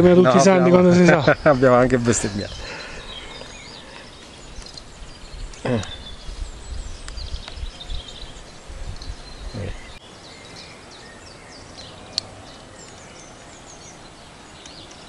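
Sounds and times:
wind buffeting microphone: 0.0 - 10.0
small birds chirping: 0.0 - 15.0.

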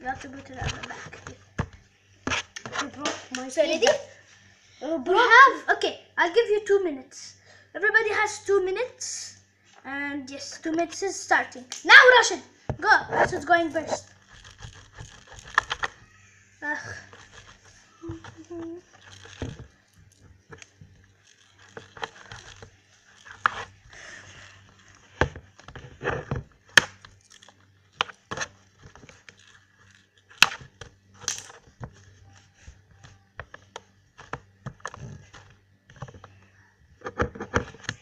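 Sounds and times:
soft handling noise: 12.7 - 38.0.

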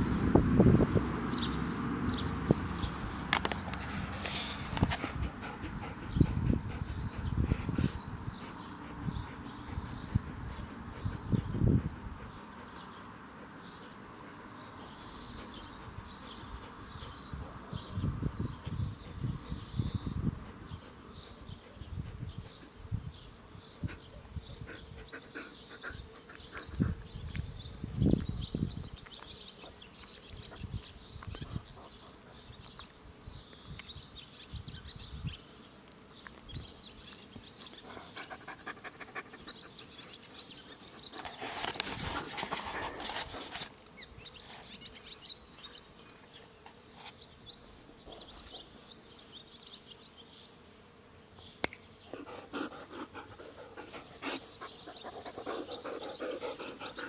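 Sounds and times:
insects buzzing faintly: 2.2 - 57.0
dog panting: 4.5 - 12.9, 14.2 - 17.1, 18.6 - 22.8, 23.8 - 27.1, 37.7 - 43.5, 52.1 - 57.0.

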